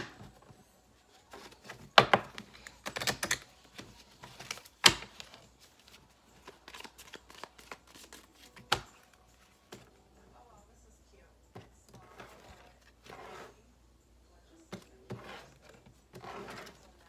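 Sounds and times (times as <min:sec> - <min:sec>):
cards being shuffled: 0:01.2 - 0:09.9.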